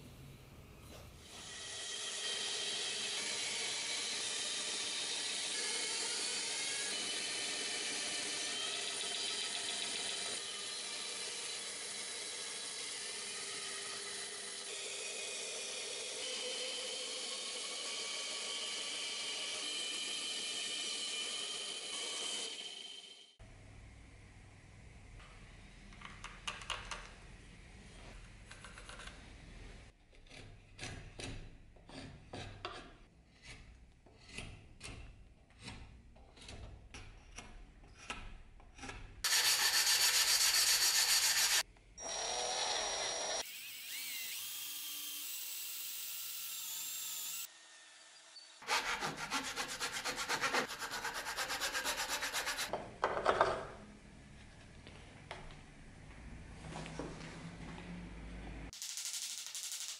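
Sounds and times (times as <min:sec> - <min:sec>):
hand file rasping wood: 0:30.1 - 0:36.8, 0:39.3 - 0:41.6, 0:48.6 - 0:52.7.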